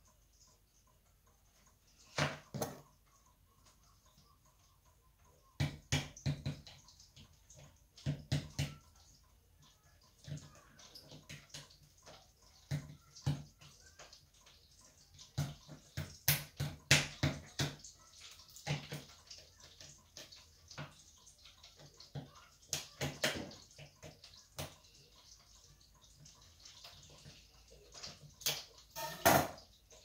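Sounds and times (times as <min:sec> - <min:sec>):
kitchen work clicks and knocks: 0:02.0 - 0:03.0, 0:15.2 - 0:21.4, 0:22.0 - 0:24.8, 0:27.9 - 0:30.0.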